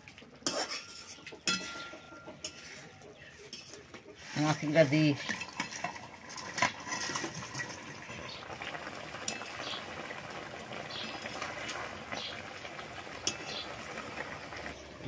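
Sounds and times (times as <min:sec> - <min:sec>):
metal utensil clinking pot: 0:00.4 - 0:02.8, 0:03.4 - 0:03.8, 0:04.4 - 0:09.8, 0:13.1 - 0:13.9
curry bubbling in pot: 0:05.0 - 0:15.0.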